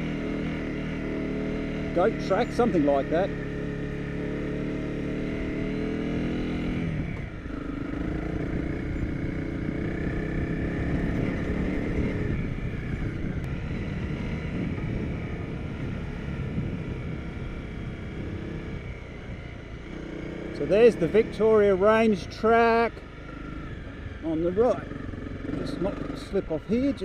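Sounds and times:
motorcycle engine running: 0:00.0 - 0:27.0
wind noise on microphone: 0:10.9 - 0:17.5.

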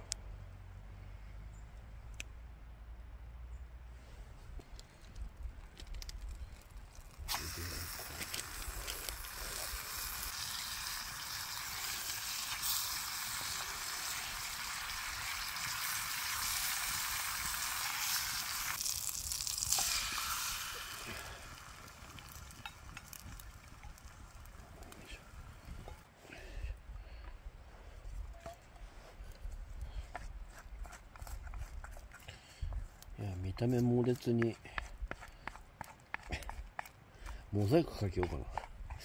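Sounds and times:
food sizzling in a hot pan: 0:07.3 - 0:24.6.

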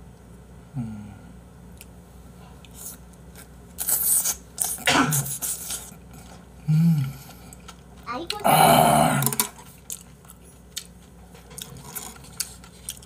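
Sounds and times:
man humming mm: 0:00.7 - 0:01.4, 0:06.6 - 0:07.2.

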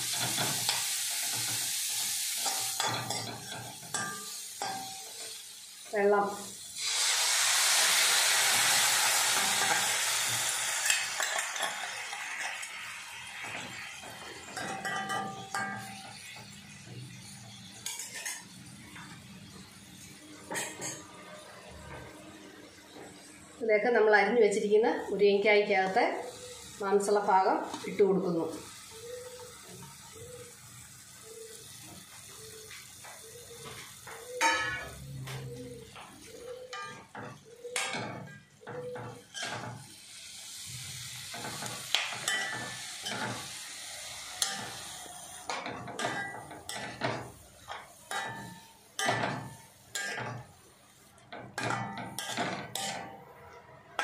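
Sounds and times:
water sizzling in a hot wok: 0:00.0 - 0:21.1, 0:25.6 - 0:53.2
steel spoon clinking a pan: 0:02.3 - 0:05.4, 0:14.4 - 0:16.4, 0:36.4 - 0:39.8, 0:41.3 - 0:43.6, 0:44.3 - 0:50.5, 0:51.3 - 0:53.2.

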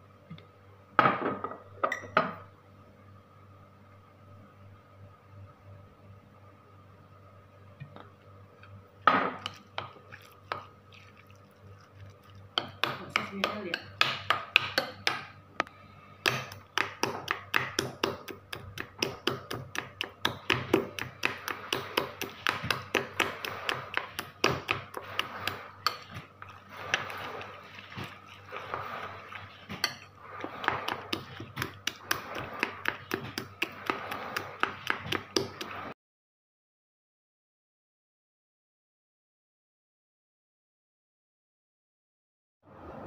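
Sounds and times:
metal spoon scraping ceramic bowl: 0:20.4 - 0:35.8.

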